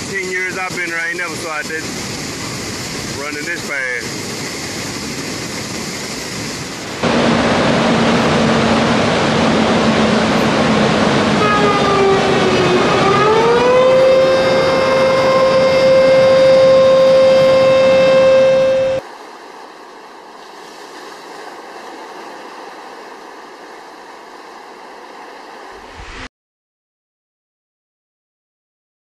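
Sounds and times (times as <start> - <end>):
water rushing through spillway: 0.0 - 16.6, 19.0 - 26.2
siren tone: 11.2 - 19.0.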